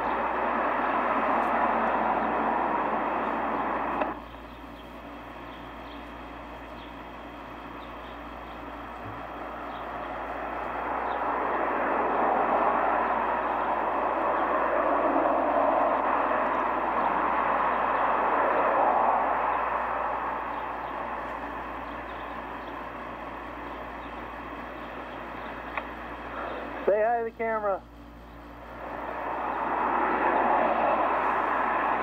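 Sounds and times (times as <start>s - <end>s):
vehicle passing: 0.0s - 4.2s, 9.2s - 22.5s, 28.6s - 32.0s.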